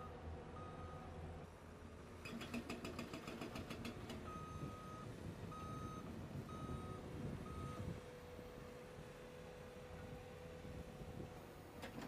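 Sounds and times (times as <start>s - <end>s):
reversing alarm beeps: 0.0s - 1.0s, 4.3s - 7.9s
heavy construction machinery running: 0.0s - 12.0s.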